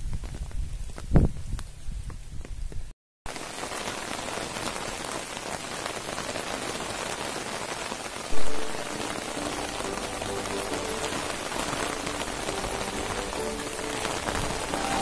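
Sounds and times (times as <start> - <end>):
rain falling on roofs and stone: 3.3 - 15.0.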